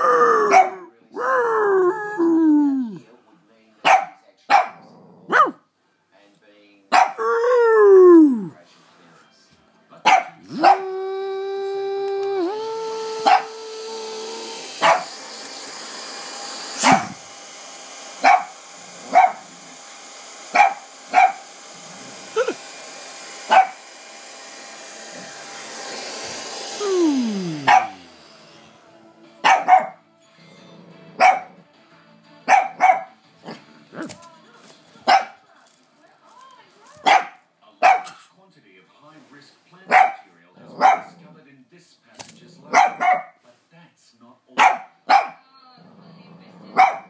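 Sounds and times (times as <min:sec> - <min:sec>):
dog barking sharply: 0:03.8 - 0:05.6, 0:06.9 - 0:07.2, 0:10.1 - 0:10.8, 0:14.8 - 0:15.1, 0:18.2 - 0:19.5, 0:20.6 - 0:21.4, 0:23.5 - 0:23.8, 0:27.7 - 0:28.0, 0:29.4 - 0:30.0, 0:31.2 - 0:31.5, 0:32.5 - 0:33.1, 0:37.0 - 0:38.2, 0:39.9 - 0:40.2, 0:42.7 - 0:43.4, 0:44.6 - 0:45.4
small electric fan motor whine: 0:10.5 - 0:29.2.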